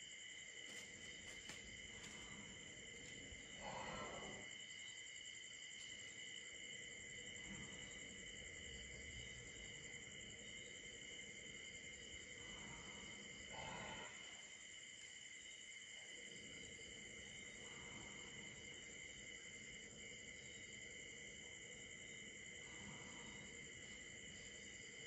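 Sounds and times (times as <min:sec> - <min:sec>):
crickets and insects trilling: 0:00.0 - 0:25.0.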